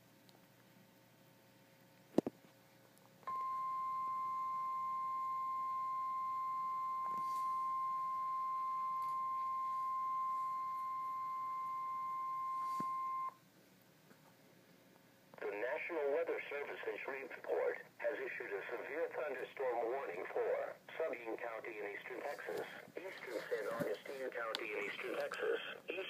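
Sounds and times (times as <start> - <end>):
high alarm beep: 3.3 - 13.3.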